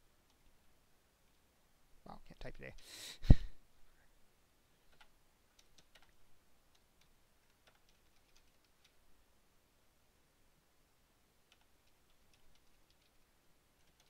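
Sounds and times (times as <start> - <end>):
computer keyboard keystrokes: 4.9 - 9.0, 11.5 - 13.2, 13.8 - 14.0.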